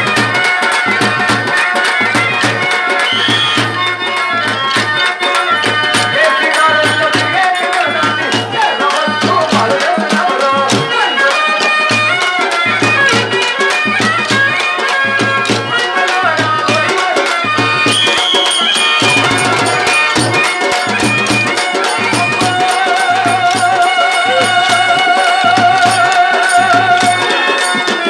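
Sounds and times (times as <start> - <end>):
hand drums and barrel drum beat: 0.0 - 28.0
harmonium melody: 0.0 - 28.0
high steady tone: 3.0 - 3.8, 17.9 - 22.8.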